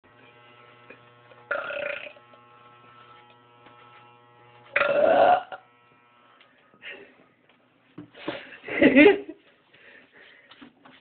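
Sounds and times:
woman belching: 4.8s - 5.6s.

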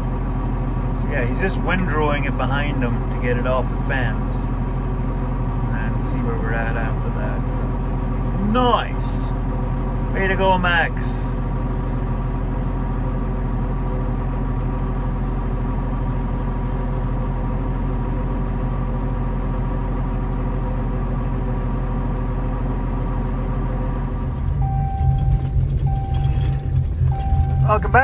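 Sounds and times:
uneven engine rumble: 0.0s - 28.0s
vehicle engine idling: 0.0s - 28.0s
beeping tone: 24.5s - 28.0s.

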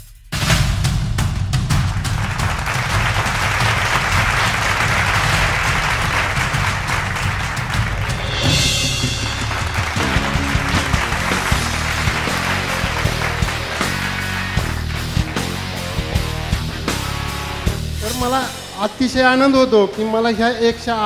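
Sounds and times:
music with bass and drums: 0.0s - 21.0s
audience applause: 1.7s - 17.3s.

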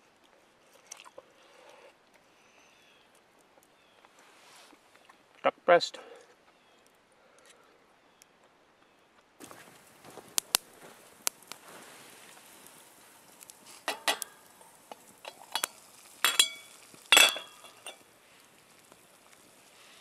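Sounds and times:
metal utensils clattering on pots: 13.8s - 14.4s, 15.2s - 18.0s.

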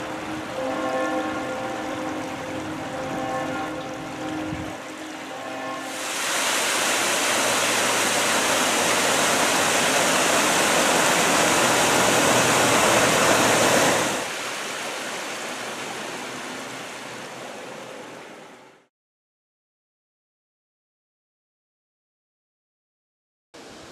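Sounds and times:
river water rushing over rocks: 0.0s - 18.6s.

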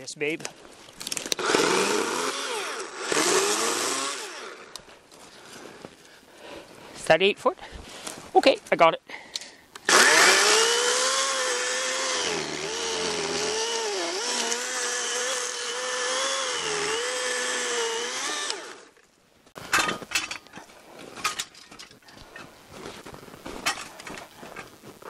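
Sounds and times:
chainsaw cutting through log: 1.1s - 4.7s, 9.8s - 19.0s
knocks and crunches: 19.6s - 25.0s.

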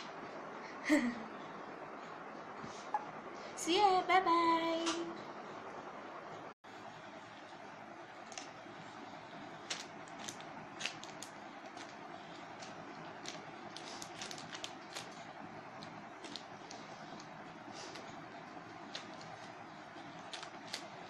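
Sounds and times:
plastic packaging crinkling: 8.2s - 8.6s, 9.6s - 21.0s.

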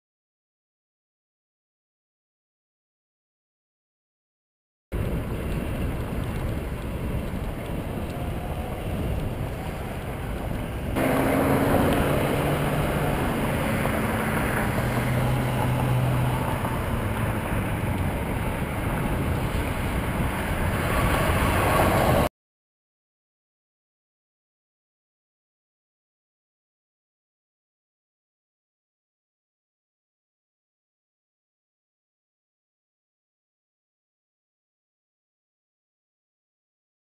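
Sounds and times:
passing vehicle engine hums: 5.0s - 22.3s
road traffic passing: 5.0s - 22.3s
wind on microphone: 5.0s - 22.3s.

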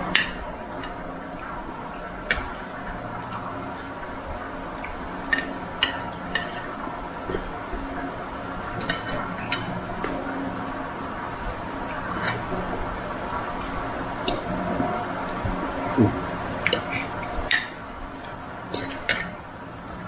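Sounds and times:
utensils clinking on dishes: 16.6s - 17.8s.

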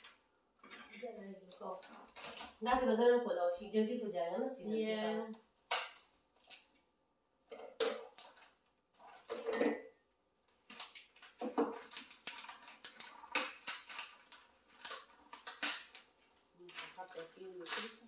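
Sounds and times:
gift wrapping crinkling and tearing: 1.2s - 2.7s, 8.0s - 9.3s, 10.5s - 18.0s.

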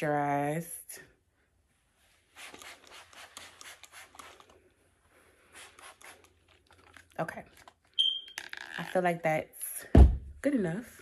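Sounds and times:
fingers rustling through braided hair: 1.8s - 8.0s.

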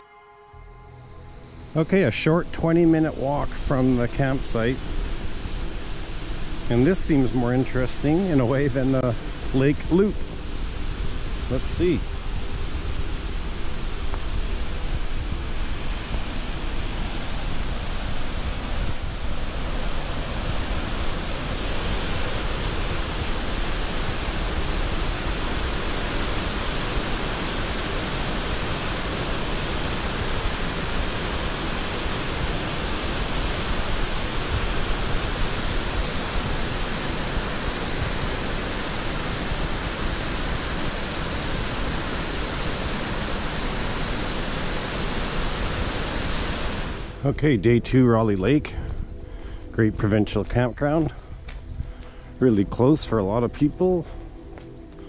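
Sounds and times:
waterfall rushing: 1.1s - 47.3s.

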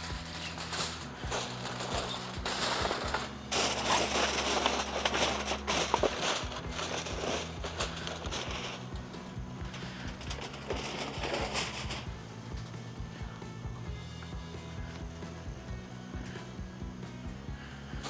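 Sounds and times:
aluminium foil crinkling: 0.0s - 12.1s.

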